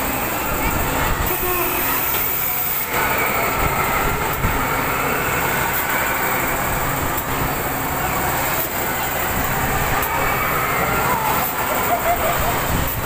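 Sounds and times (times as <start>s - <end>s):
swing ride rumble and hiss: 0.0s - 13.0s.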